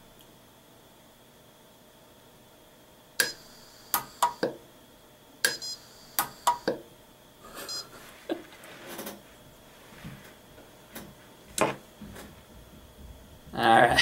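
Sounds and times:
pulse arc welder snapping: 3.2s - 4.6s, 5.4s - 6.8s.

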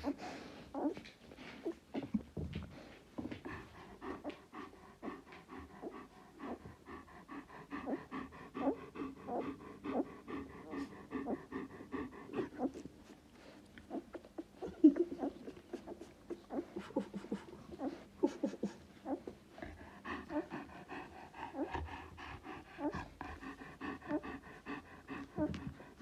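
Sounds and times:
puppies breathing: 0.0s - 26.0s
puppies suckling: 0.0s - 26.0s.

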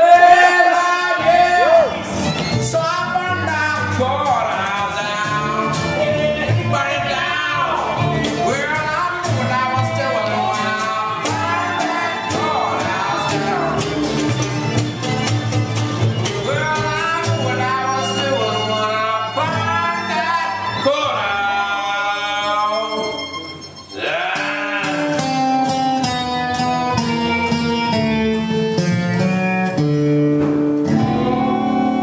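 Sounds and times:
acoustic guitar: 0.0s - 32.0s
bass: 0.0s - 32.0s
mandolin: 0.0s - 32.0s
bowed fiddle: 1.2s - 3.8s, 7.6s - 29.9s
two voices singing in harmony: 9.2s - 14.2s, 24.0s - 25.4s.

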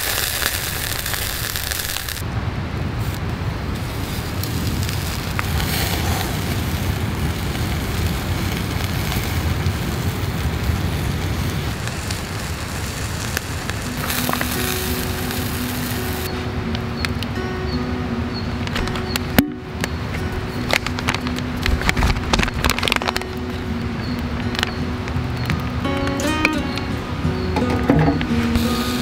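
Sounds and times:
meat sizzling over charcoal: 0.0s - 2.2s, 3.0s - 17.1s, 20.6s - 26.6s, 28.3s - 29.0s
coals crackling: 0.0s - 29.0s.

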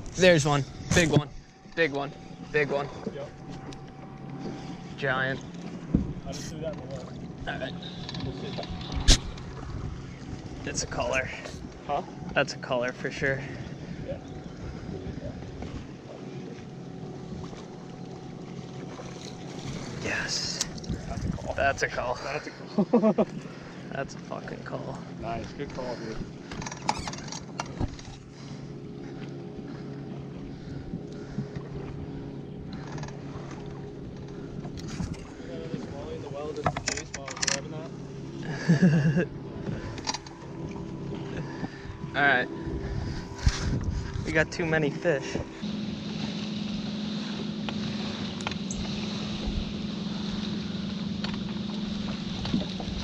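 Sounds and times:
boat motor humming: 0.0s - 53.0s
electric motor humming: 39.4s - 53.0s.

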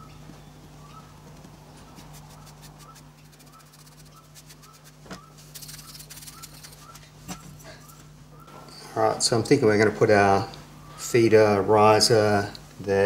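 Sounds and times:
low steady hum: 0.0s - 13.0s
paintbrush brushing sand: 1.8s - 7.2s.

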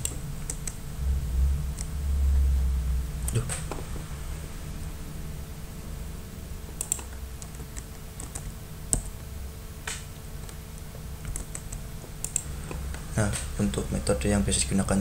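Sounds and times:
low background hum: 0.0s - 15.0s
computer keyboard clicks: 6.7s - 9.1s, 11.2s - 12.8s.

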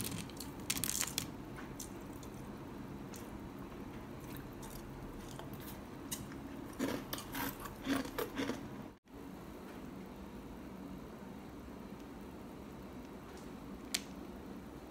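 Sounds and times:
crunchy cereal chewing: 3.1s - 8.7s.

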